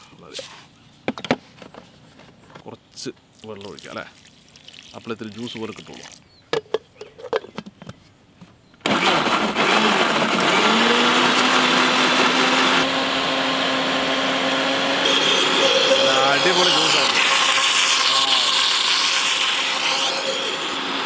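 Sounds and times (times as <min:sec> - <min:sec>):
blender motor running: 0:08.8 - 0:21.0.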